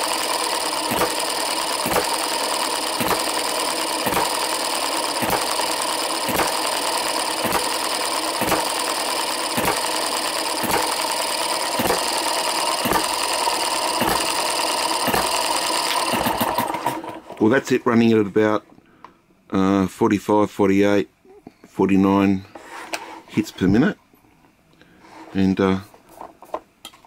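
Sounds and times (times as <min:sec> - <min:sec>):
flywheels and gears whirring: 0:00.0 - 0:17.2.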